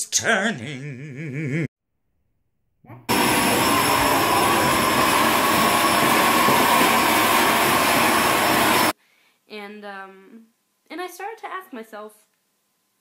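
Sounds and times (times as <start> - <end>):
vacuum cleaner running: 3.1 - 9.0.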